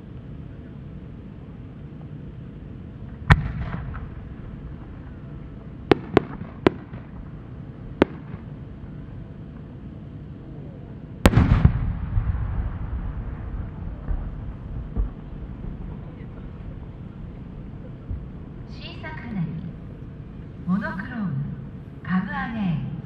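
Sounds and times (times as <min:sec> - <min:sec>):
loud firework burst boom: 0:03.2 - 0:05.2, 0:11.2 - 0:16.9
firework deep bang: 0:03.2 - 0:07.4, 0:08.0 - 0:08.5, 0:11.2 - 0:18.4
firework sharp cracks: 0:03.2 - 0:08.6, 0:11.2 - 0:16.3.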